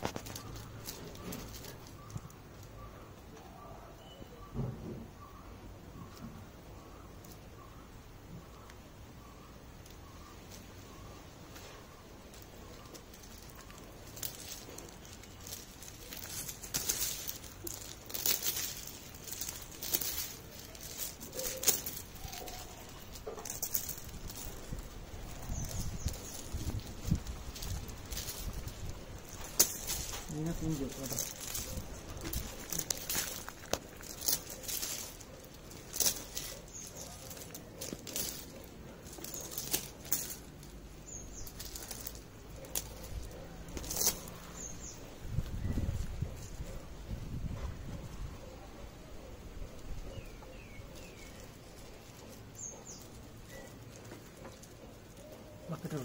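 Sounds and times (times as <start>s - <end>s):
net rustling on gravel: 0.0s - 2.7s, 11.5s - 47.5s, 50.6s - 56.0s.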